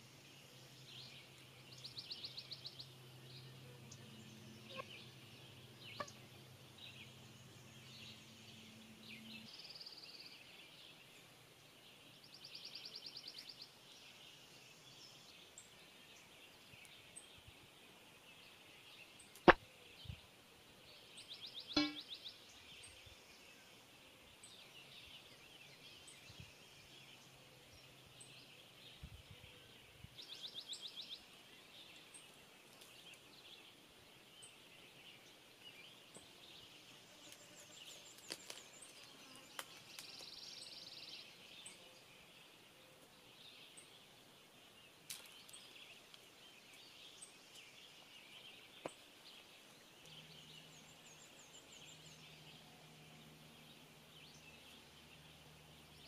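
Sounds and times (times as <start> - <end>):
distant birds singing: 0.0 - 56.0
bird trills: 4.6 - 5.2, 5.9 - 6.3, 21.7 - 22.2.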